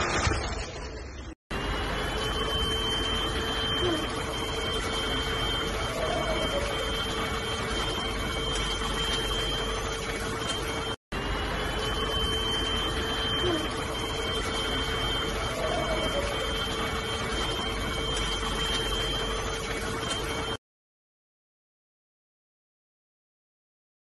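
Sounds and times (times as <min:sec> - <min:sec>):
stick vacuum running: 0:01.6 - 0:20.6.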